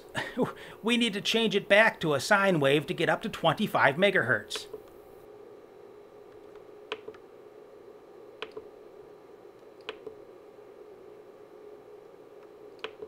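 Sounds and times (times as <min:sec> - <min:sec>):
faint hum: 0:00.0 - 0:13.0
oscilloscope button clicks: 0:06.9 - 0:07.2, 0:08.4 - 0:08.7, 0:09.8 - 0:10.2, 0:12.8 - 0:13.0.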